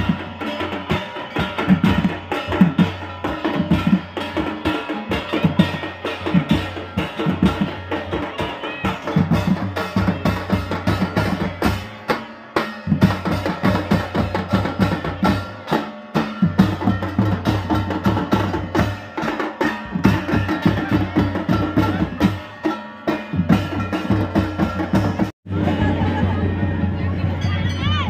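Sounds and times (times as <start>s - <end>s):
barrel drums beaten with sticks: 0.0s - 26.0s.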